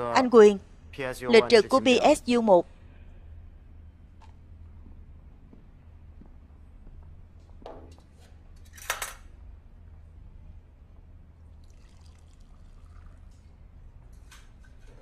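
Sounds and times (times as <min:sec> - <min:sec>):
low steady hum: 0:00.0 - 0:15.0
liquid trickling as poured: 0:11.5 - 0:13.6.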